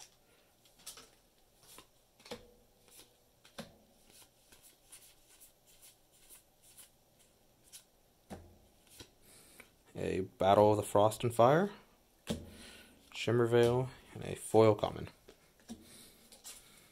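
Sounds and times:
trading cards flipped through: 0.6 - 6.9, 8.8 - 9.1.

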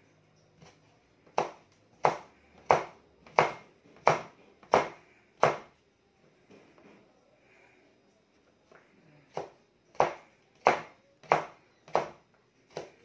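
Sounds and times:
knife chopping on cutting board: 0.6 - 5.7, 9.3 - 13.0.

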